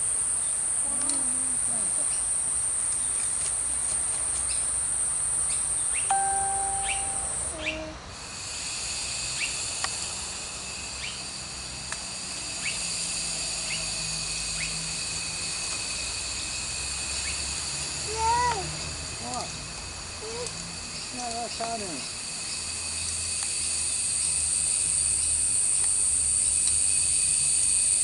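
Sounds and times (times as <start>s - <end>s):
insect chorus drone: 0.0s - 28.0s
whistled note: 6.1s - 7.5s.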